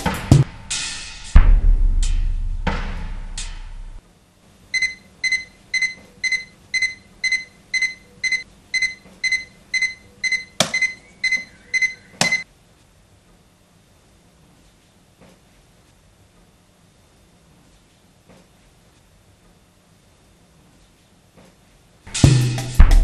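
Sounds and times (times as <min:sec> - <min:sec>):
alarm clock beeping: 0:04.8 - 0:12.4
alarm clock switch click: 0:04.8 - 0:12.4.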